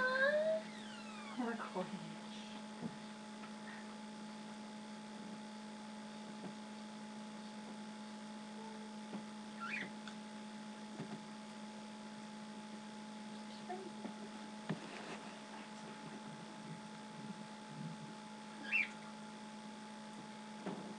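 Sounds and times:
low electrical hum: 0.0 - 20.9
bird chirp: 9.6 - 9.9, 18.6 - 19.0.

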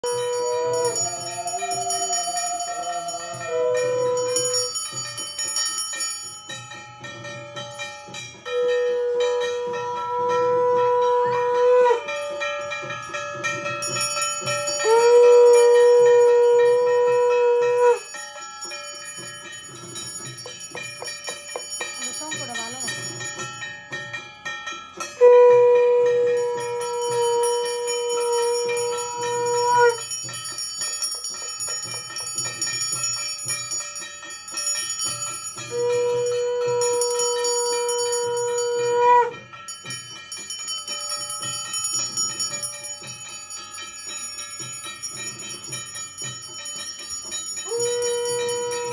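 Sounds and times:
conch shell blasts: 0.0 - 4.9, 8.4 - 12.9, 13.8 - 18.2, 25.0 - 30.3, 35.6 - 39.5, 47.6 - 48.9
hand bell ringing: 0.0 - 48.9
wavering vocal call: 0.1 - 4.7.

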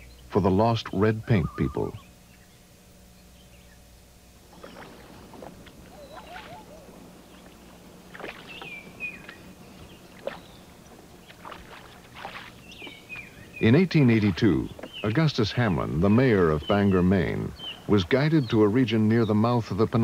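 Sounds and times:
faint low hum: 0.0 - 20.0
oars splashing in water: 4.4 - 18.3.

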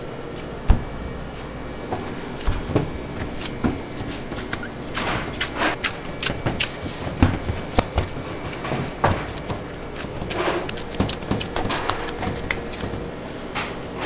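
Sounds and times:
hands slapping dough: 2.4 - 13.1.

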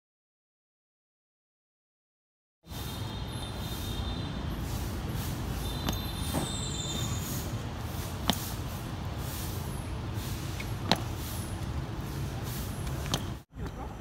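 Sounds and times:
tennis balls bouncing on hard court: 5.8 - 6.6, 10.6 - 11.7.

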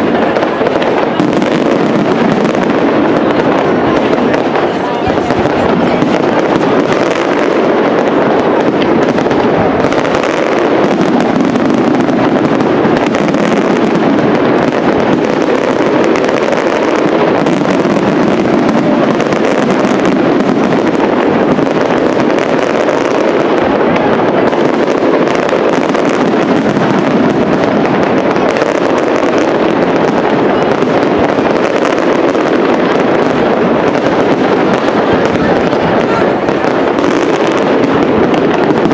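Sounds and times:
fireworks bursts and crackle: 0.0 - 38.9.

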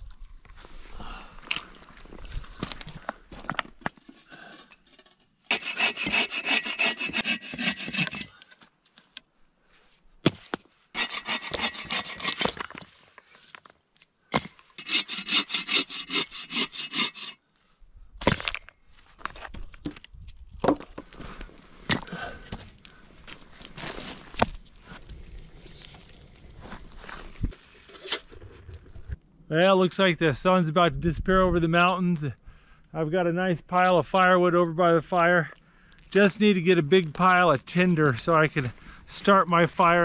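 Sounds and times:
knocks and crunches on gravel: 1.4 - 4.5, 18.2 - 27.6
hand saw cutting through log: 5.5 - 8.4, 11.0 - 12.6, 14.4 - 17.4.

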